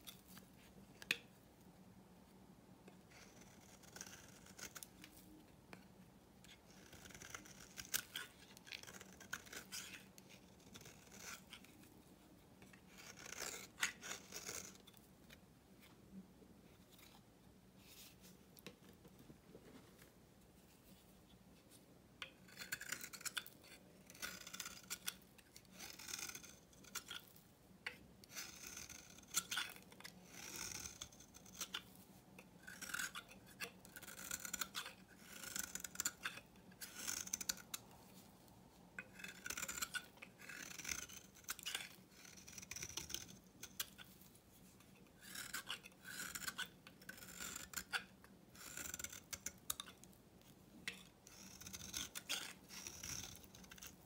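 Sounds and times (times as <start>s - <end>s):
knife scraping soap: 2.9s - 12.0s, 12.6s - 15.4s, 22.2s - 38.3s, 39.0s - 54.0s.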